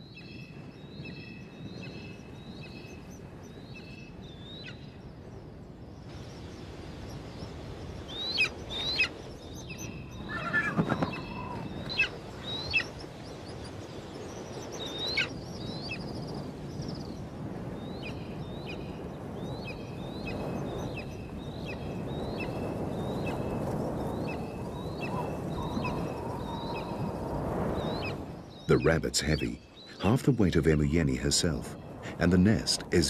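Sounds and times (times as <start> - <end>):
rising eagle calls: 8.2 - 13.2, 24.9 - 28.2.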